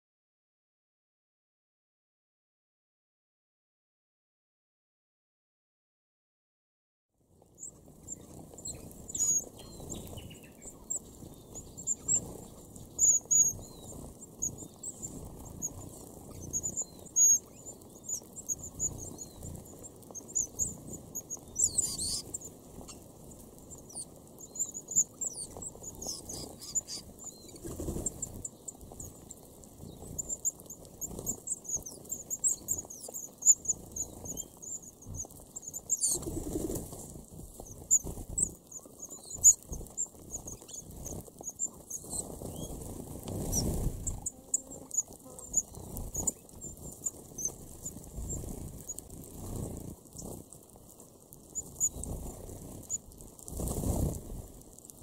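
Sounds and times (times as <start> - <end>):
pecking and shuffling in seed husks: 7.3 - 55.0
flurry of wingbeats: 7.7 - 50.5, 51.6 - 54.6
finches calling: 20.2 - 23.0, 23.9 - 28.2.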